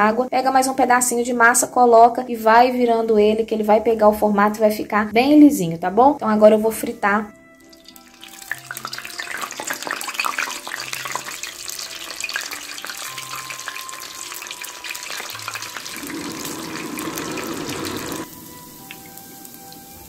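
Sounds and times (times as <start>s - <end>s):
food deep-frying in hot oil: 7.5s - 20.0s.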